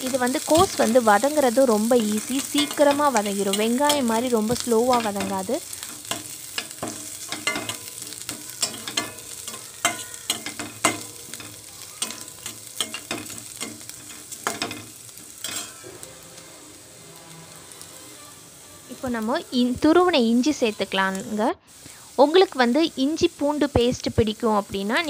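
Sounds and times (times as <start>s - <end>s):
cabbage sizzling in oil: 0.0s - 25.0s
metal spatula scraping a pan: 2.3s - 19.0s.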